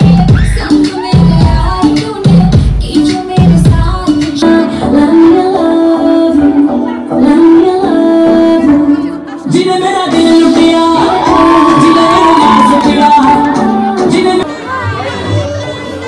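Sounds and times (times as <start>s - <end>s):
backing music: 0.0s - 16.0s
person singing long notes: 4.9s - 14.6s.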